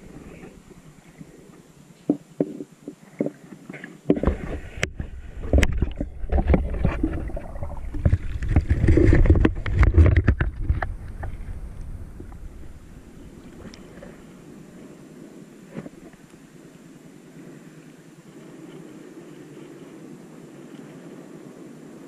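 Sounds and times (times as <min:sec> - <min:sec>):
water sloshing and splashing: 0:02.4 - 0:14.4
gurgles and knocks: 0:04.0 - 0:11.4.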